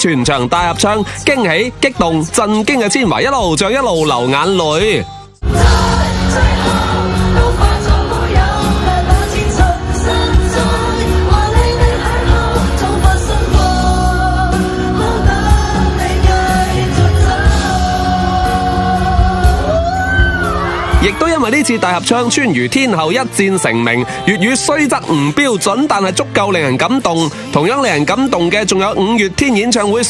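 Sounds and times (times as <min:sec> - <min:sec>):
audience singing along: 0:05.4 - 0:19.8
woman singing pop ballad: 0:05.4 - 0:20.9
band playing: 0:05.4 - 0:23.7.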